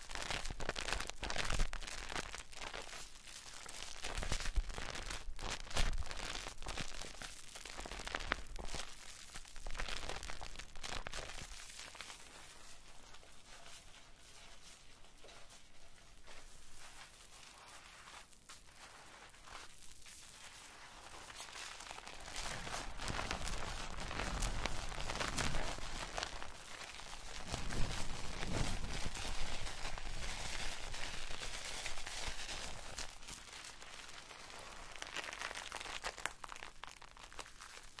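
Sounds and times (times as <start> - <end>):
soap lather squishing: 16.7 - 27.4.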